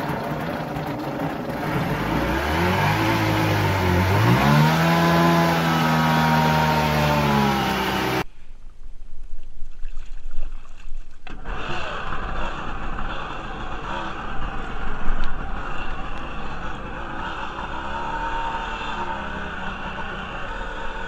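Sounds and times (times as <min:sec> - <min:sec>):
jet ski engine running: 0:00.0 - 0:08.2, 0:11.3 - 0:21.0
water rushing along hull: 0:00.0 - 0:08.2.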